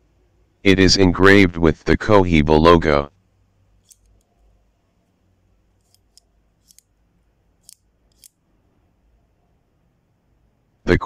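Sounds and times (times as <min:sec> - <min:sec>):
cigar cutter blades clicking: 0:03.8 - 0:04.3, 0:05.8 - 0:07.0, 0:07.6 - 0:08.4.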